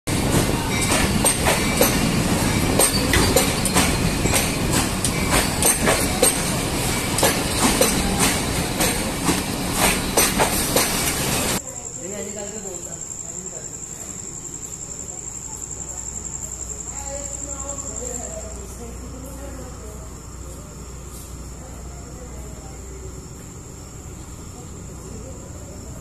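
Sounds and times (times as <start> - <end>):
train wheels clattering: 0.1 - 11.6.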